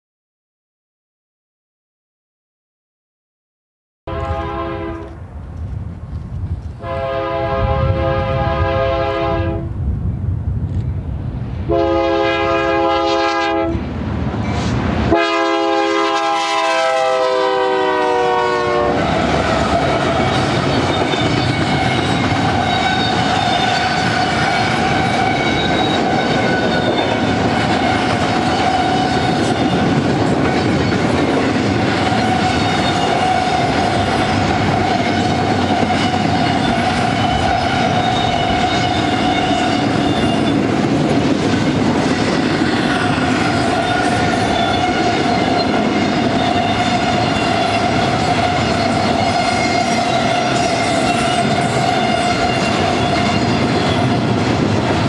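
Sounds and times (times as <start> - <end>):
locomotive air horn blasts: 4.1 - 5.2, 6.8 - 9.7, 11.7 - 13.8, 15.1 - 29.9, 44.5 - 53.5
train cars rumbling and clacking: 4.1 - 9.0, 9.7 - 55.0.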